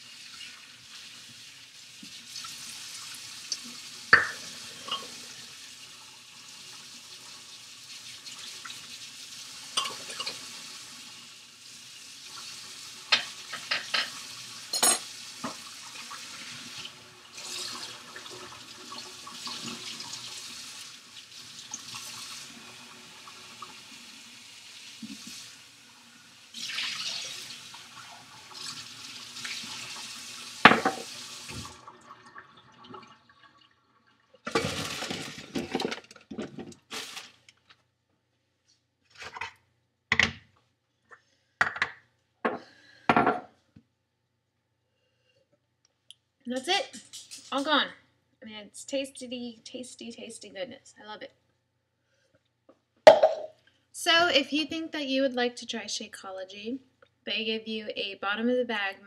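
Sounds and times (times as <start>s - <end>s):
tap water running into a sink: 0.0s - 36.8s, 53.1s - 53.5s
dishes clinking against a sink: 4.1s - 5.2s, 9.8s - 10.4s, 13.1s - 15.6s, 30.7s - 31.1s, 42.5s - 43.5s.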